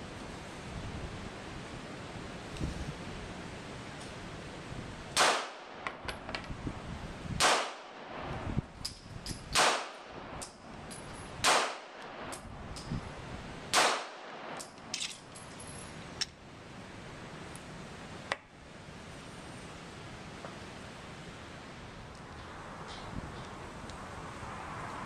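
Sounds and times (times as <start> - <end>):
pistol shots: 5.2 - 5.8, 7.4 - 8.0, 9.5 - 10.0, 11.4 - 11.9, 13.7 - 14.5
light metallic clinks: 10.4 - 11.4, 14.6 - 16.3.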